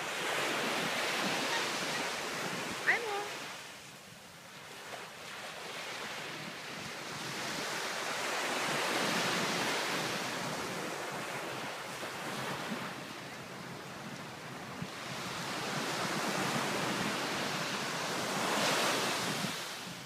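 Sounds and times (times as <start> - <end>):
surf washing on beach: 0.0 - 20.0.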